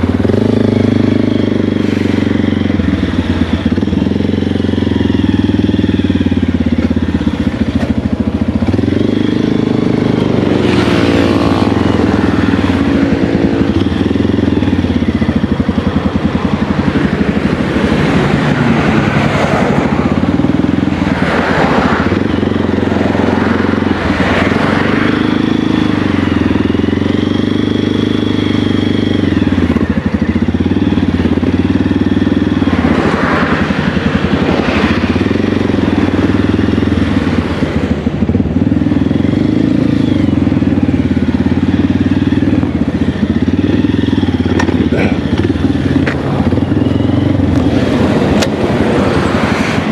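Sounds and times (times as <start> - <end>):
motorcycle engine revving: 0.0 - 49.9
rushes of noise: 42.7 - 49.9.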